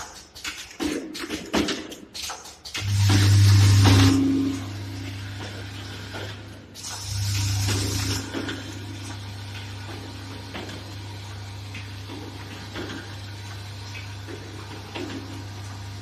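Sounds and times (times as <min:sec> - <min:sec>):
machine humming: 0:02.8 - 0:16.0.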